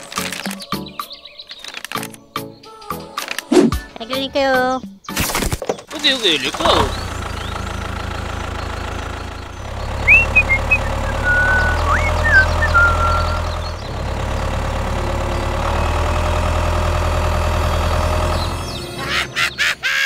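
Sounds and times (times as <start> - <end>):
diesel tractor engine idling: 6.3 - 19.0
bird chirps: 8.2 - 13.9.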